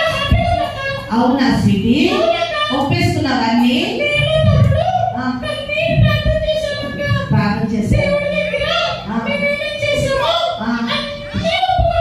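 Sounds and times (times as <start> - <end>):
children singing: 4.1 - 12.0.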